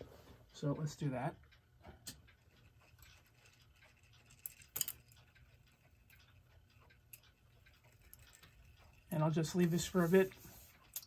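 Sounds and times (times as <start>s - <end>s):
clock movement clicking: 0.0s - 11.0s
electric clock humming: 0.0s - 11.0s.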